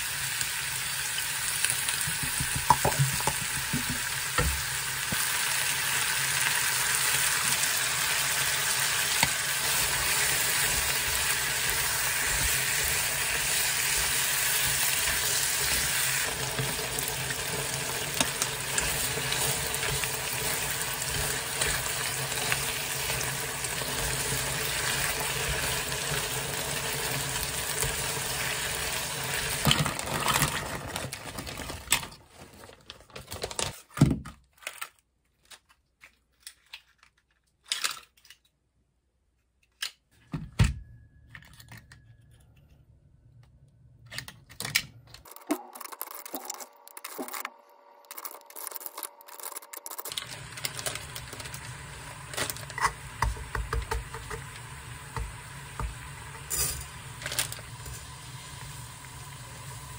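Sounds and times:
food sizzling in a frying pan: 0.0s - 30.5s, 50.2s - 59.9s.

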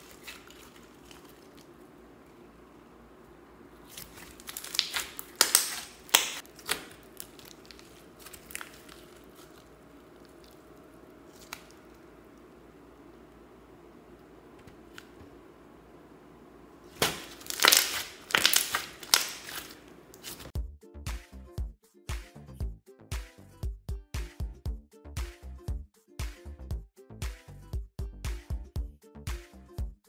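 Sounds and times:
slime squeezing wet pops: 3.8s - 12.0s, 17.0s - 19.8s.

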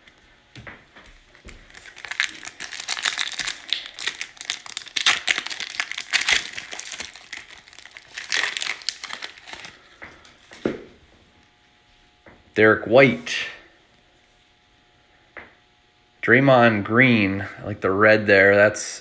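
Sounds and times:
foil wrapper crinkling: 1.3s - 10.5s.

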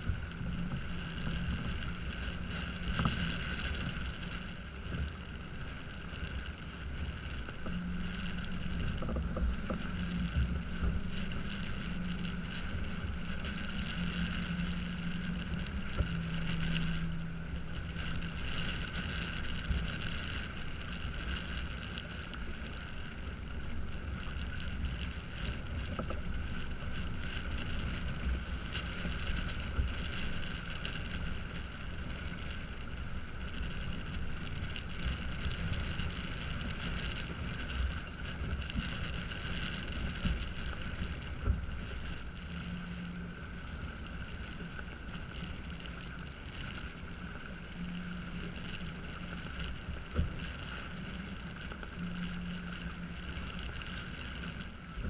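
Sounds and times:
water rushing along hull: 0.0s - 55.0s
wind buffeting microphone: 0.0s - 55.0s.

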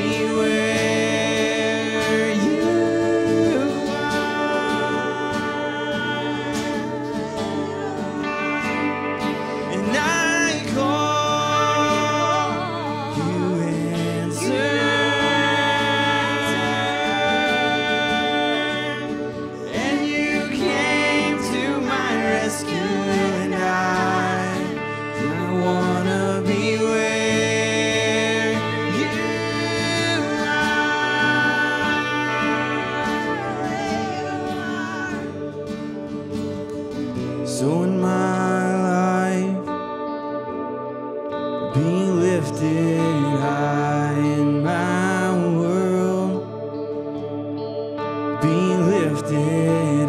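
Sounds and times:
women singing with vibrato: 0.0s - 37.8s
guitar: 0.0s - 50.0s
sustained ambient pad: 0.0s - 50.0s.

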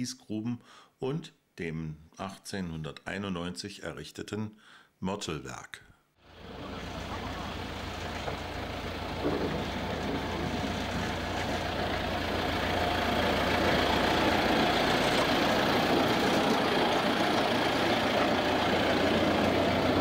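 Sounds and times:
diesel locomotive passing: 6.3s - 20.0s.

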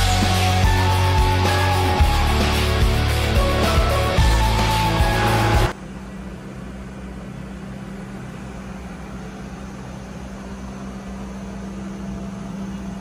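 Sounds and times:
engine room machinery hum: 0.0s - 13.0s
ventilation noise: 0.0s - 13.0s.

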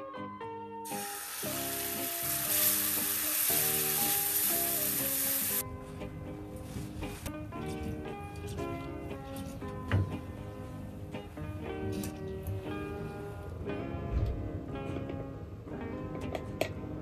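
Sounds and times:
background music: 0.0s - 17.0s
liquid sizzling in a frying pan: 0.9s - 5.6s.

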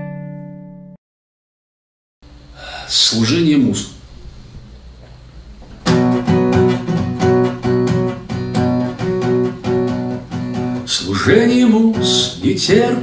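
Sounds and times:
acoustic guitar strumming chords: 0.0s - 1.0s, 5.8s - 13.0s.

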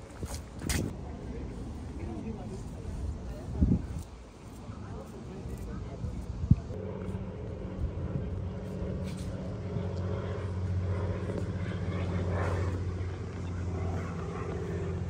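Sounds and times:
engine low drone: 0.0s - 15.0s.

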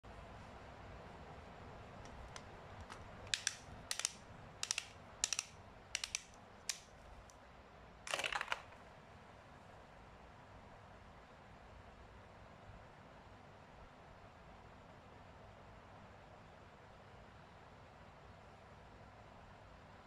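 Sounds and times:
plastic clicks of toy launcher: 2.1s - 6.9s, 8.1s - 8.8s.

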